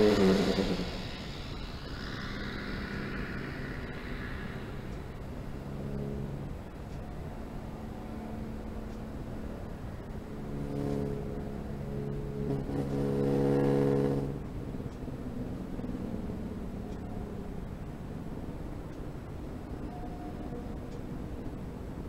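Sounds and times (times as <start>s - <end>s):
propeller plane engine droning: 0.0s - 22.0s.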